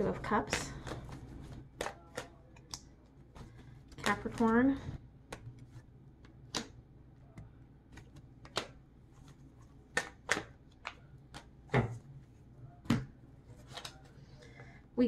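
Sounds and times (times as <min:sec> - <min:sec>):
cards snapping and tapping: 0:00.4 - 0:04.6, 0:05.2 - 0:11.9.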